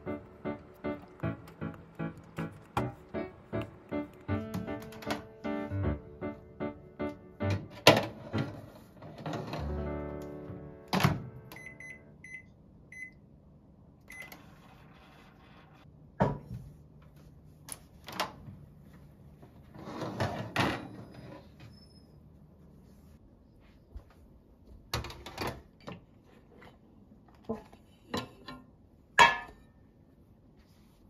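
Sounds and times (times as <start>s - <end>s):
soft background music: 0.0s - 12.1s.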